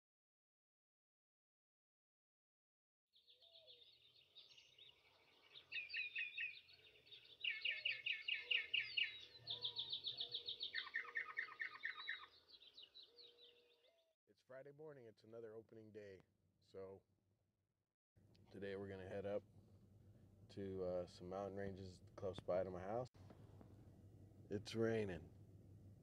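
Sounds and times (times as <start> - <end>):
birds singing: 3.2 - 14.1.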